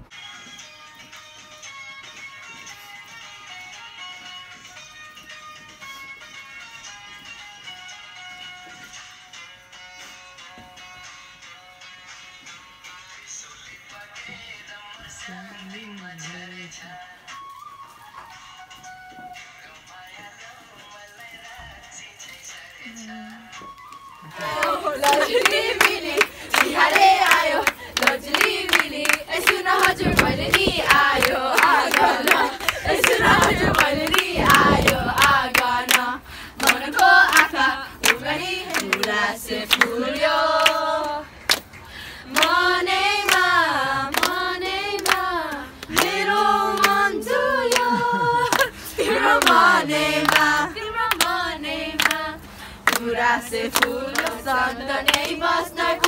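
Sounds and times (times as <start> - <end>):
rhythmic hand clapping: 23.8 - 56.0
women singing in unison: 24.3 - 41.3, 42.3 - 56.0.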